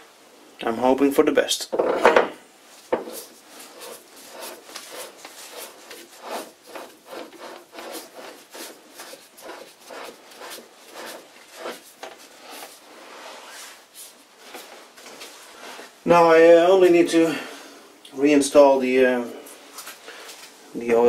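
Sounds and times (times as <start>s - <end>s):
metal threads rubbing and scraping: 2.8s - 15.8s.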